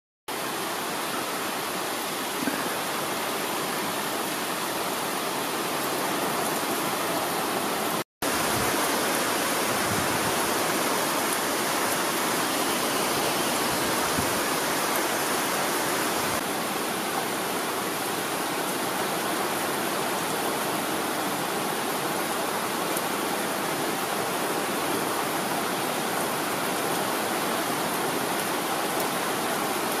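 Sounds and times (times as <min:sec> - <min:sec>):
heavy rain hissing: 0:00.3 - 0:18.3.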